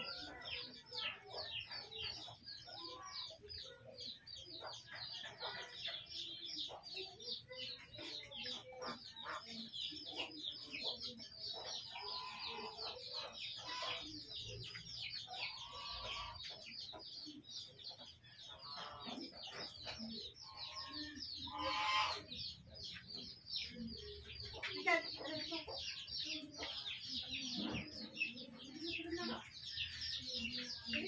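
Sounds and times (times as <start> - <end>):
chickens clucking: 0.0 - 31.0.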